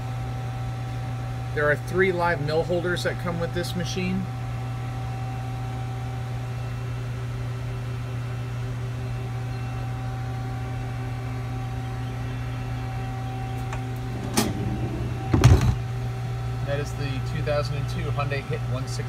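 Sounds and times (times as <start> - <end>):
lathe humming: 13.6 - 16.6
steel sliding door clattering: 14.0 - 15.8.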